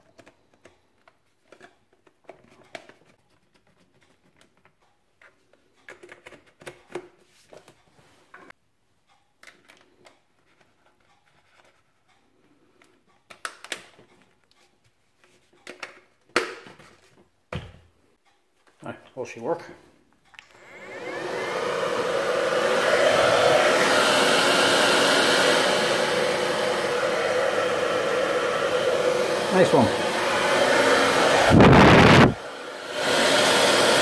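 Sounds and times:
plastic parts clicking and knocking: 0.0 - 7.7, 9.4 - 11.8, 12.8 - 14.6, 15.4 - 17.0.

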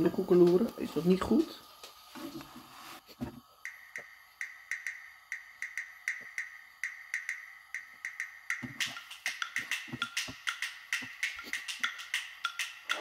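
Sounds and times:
light background music: 3.6 - 13.0
wood-block-like clicking beat: 3.6 - 13.0.

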